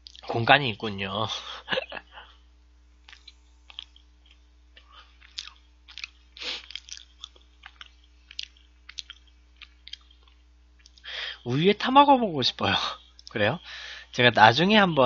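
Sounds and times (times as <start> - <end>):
chewing with mouth clicks: 0.0 - 0.3, 3.0 - 11.1, 13.1 - 13.4
faint steady hum: 0.0 - 15.0.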